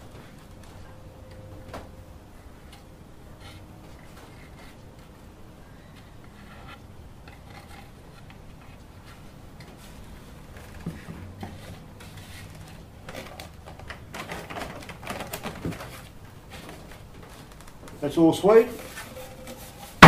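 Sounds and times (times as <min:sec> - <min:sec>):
faint low hum: 0:00.0 - 0:20.0
wood scraping and rubbing: 0:03.4 - 0:05.2, 0:05.9 - 0:17.8.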